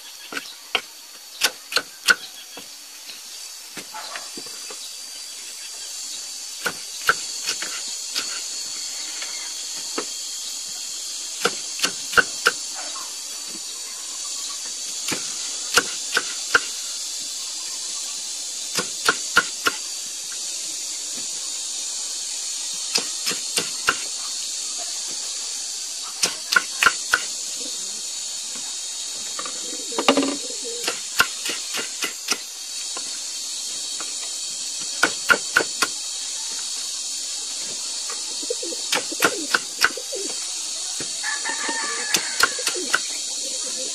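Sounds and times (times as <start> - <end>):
steady high hiss: 0.0 - 43.9.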